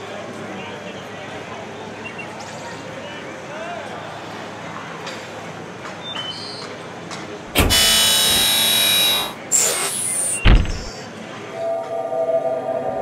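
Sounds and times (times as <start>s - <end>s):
cartoon door whoosh: 7.5s - 11.0s
door slamming shut: 7.5s - 11.0s.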